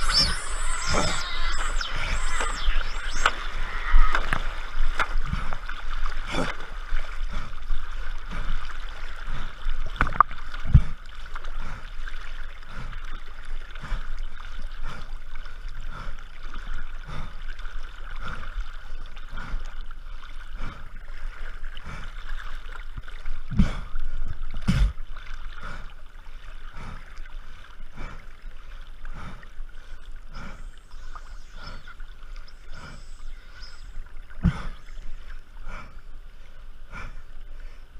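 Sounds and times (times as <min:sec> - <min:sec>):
water sloshing and splashing: 0:03.3 - 0:30.8.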